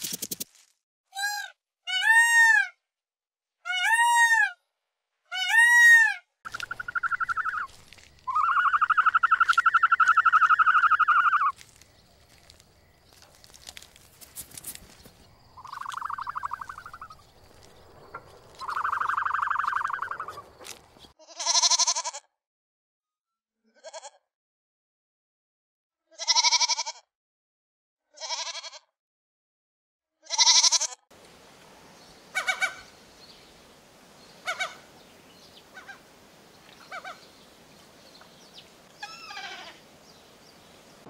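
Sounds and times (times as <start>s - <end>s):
peacock calls: 5.3s - 11.6s, 15.6s - 21.0s, 32.2s - 33.6s, 34.3s - 41.0s
goat bleating: 21.2s - 22.3s, 23.7s - 24.2s, 26.1s - 27.0s, 28.2s - 28.9s, 30.2s - 31.0s, 39.0s - 39.8s.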